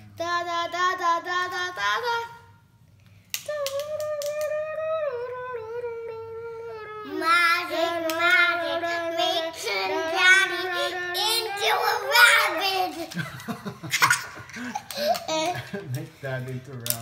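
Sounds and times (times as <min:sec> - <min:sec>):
girl singing wordless tune: 0:00.0 - 0:02.8, 0:03.4 - 0:13.2.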